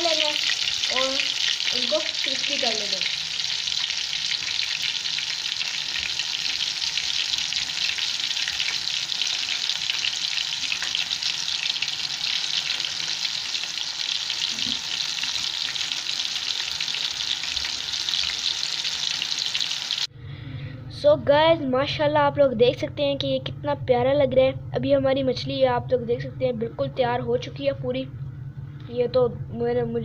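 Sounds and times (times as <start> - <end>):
fish frying in hot oil: 0.0 - 20.1.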